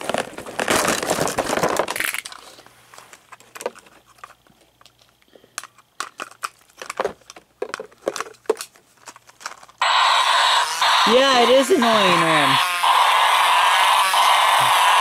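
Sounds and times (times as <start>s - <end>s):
plastic packaging crinkling: 0.0s - 5.2s, 5.9s - 9.8s
plastic toy clicking and knocking: 5.6s - 9.6s.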